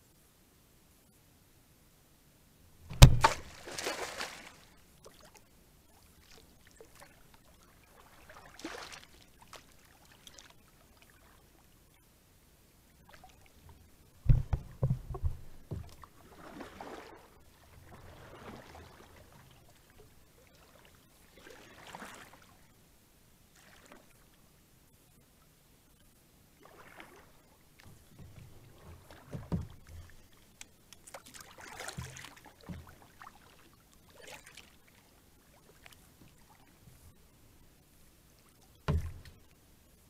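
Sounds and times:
water splashing: 2.8 - 5.4, 6.0 - 11.3, 14.3 - 22.5, 26.6 - 36.8
water sloshing beside boat: 2.8 - 11.7, 12.9 - 22.7, 26.6 - 37.7, 38.3 - 39.6
knocks against plastic kayak hull: 2.9 - 3.6, 14.3 - 16.0, 38.9 - 39.4.

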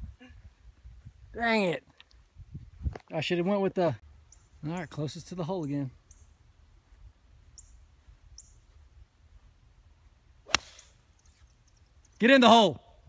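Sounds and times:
golf club striking ball: 10.4 - 11.0.

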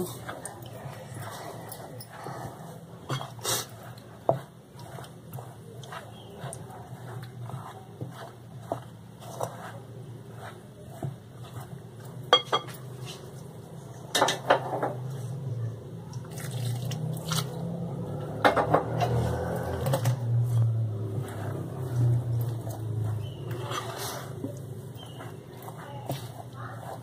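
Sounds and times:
dishes clinking against glass: 12.3 - 12.8
water pouring into flour: 16.2 - 17.4.

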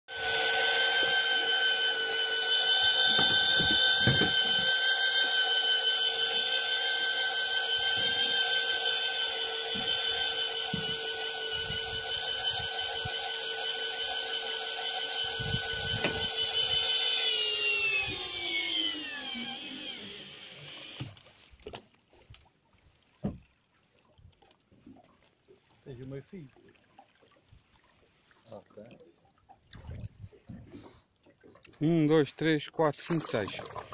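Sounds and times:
electric fishing reel motor whining: 0.1 - 21.2.

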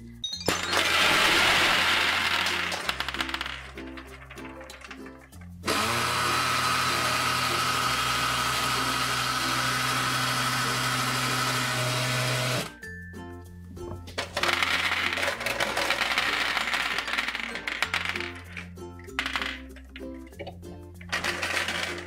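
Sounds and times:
gumballs clattering: 0.3 - 5.6, 14.1 - 20.3, 21.0 - 22.0
toy blender whirring: 0.7 - 4.9, 5.7 - 12.7, 14.4 - 17.9, 21.1 - 22.0.

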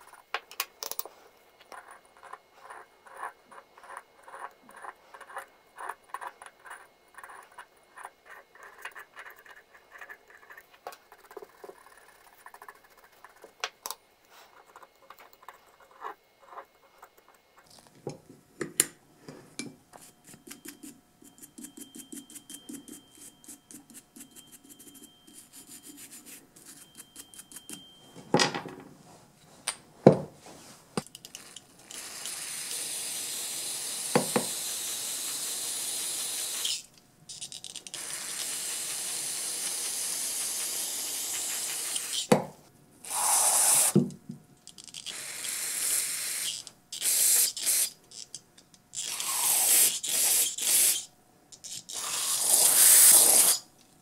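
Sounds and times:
brush scrubbing metal threads: 20.0 - 27.8
aerosol can spraying: 31.4 - 36.8, 37.9 - 42.3, 43.1 - 44.0, 45.1 - 48.0, 49.0 - 53.6.

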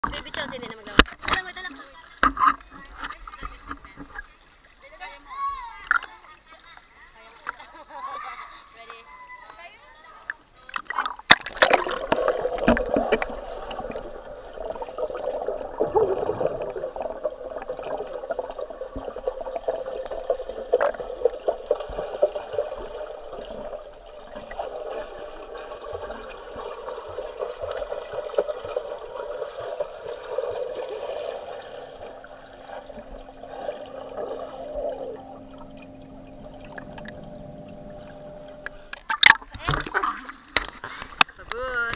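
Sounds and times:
underwater swishing and bubbling: 10.3 - 41.4.

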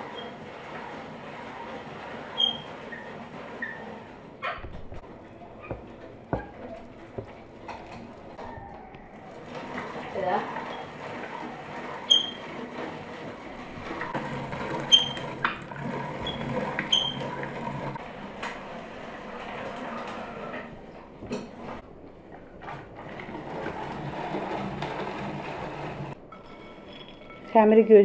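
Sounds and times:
drum grater grinding nuts: 0.0 - 4.2, 9.2 - 20.5, 23.0 - 26.2
short high squeaks: 2.2 - 4.1, 11.9 - 12.6, 14.8 - 15.4.

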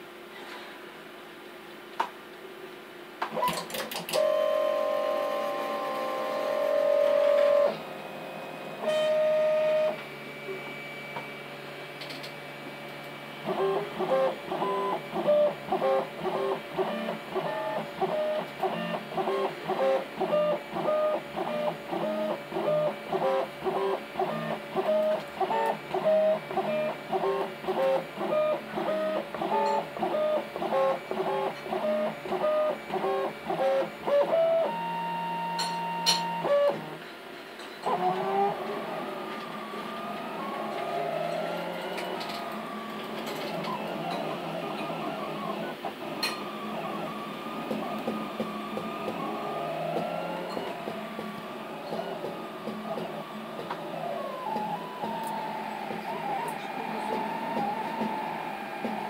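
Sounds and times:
stepper motors whining: 37.9 - 59.0.

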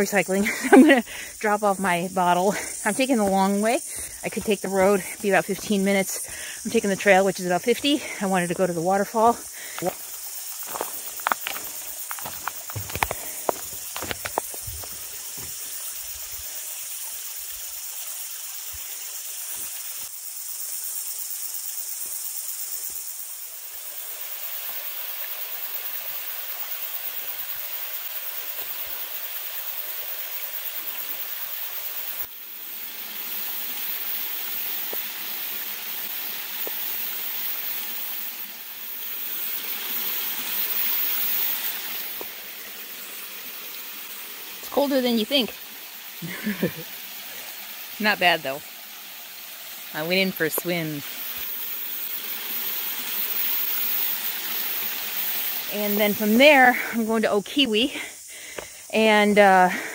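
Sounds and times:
waterfall splashing into pool: 23.8 - 55.7.

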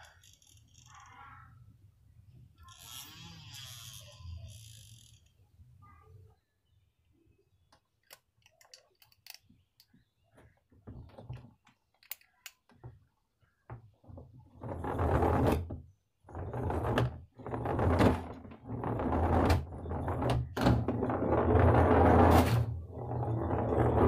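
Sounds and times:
toy car motor running: 2.6 - 5.2
faint clicks of parts handled: 7.7 - 10.6, 11.2 - 13.0
wheels rattling on hard surface: 16.3 - 24.0.

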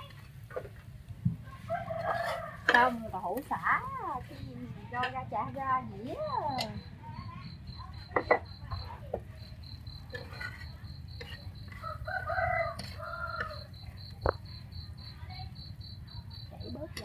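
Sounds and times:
rooster crowing: 1.5 - 2.9, 11.7 - 13.9
insect chirping: 5.7 - 17.0.

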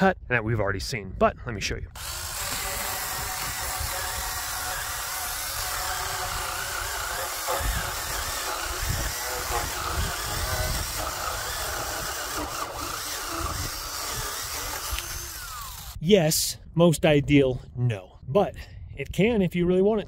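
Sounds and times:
electric chainsaw cutting log: 2.0 - 16.0.

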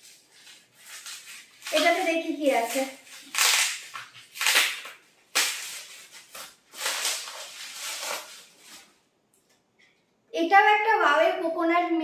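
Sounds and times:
plastic wrapping crinkling: 0.0 - 9.2.

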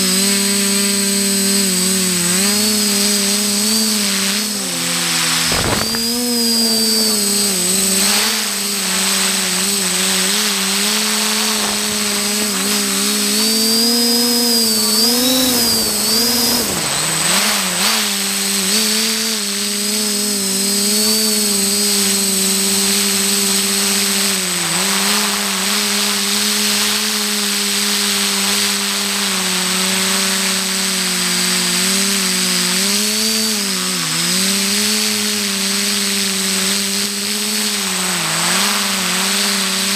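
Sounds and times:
steady high whine: 0.0 - 31.4
drone propellers buzzing: 0.0 - 39.9.

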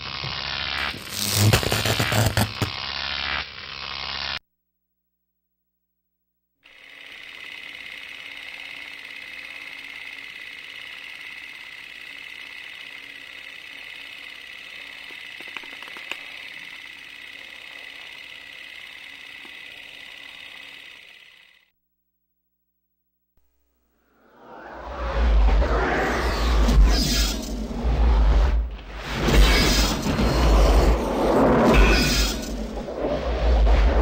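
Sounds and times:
film projector whirring clatter: 6.7 - 21.7
sharp clicks: 15.0 - 16.9.

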